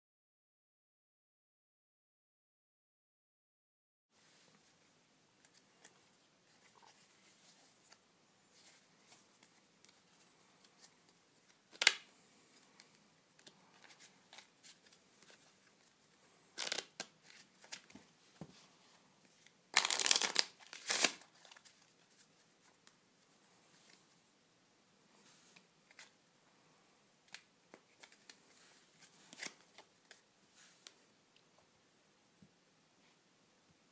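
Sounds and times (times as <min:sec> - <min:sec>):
playing cards rustling and sliding: 0:05.4 - 0:24.2, 0:25.2 - 0:31.1
cards riffling: 0:16.5 - 0:18.0, 0:19.7 - 0:21.7.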